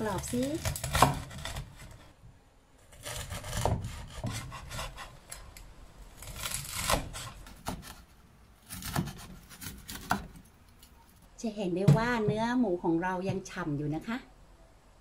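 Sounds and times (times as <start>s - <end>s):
knife sawing through crispy skin: 0.0s - 2.1s, 2.9s - 5.5s, 6.2s - 10.3s.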